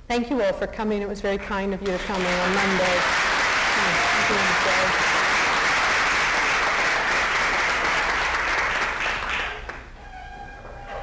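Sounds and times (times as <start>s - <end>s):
audience applauding: 1.8s - 10.0s.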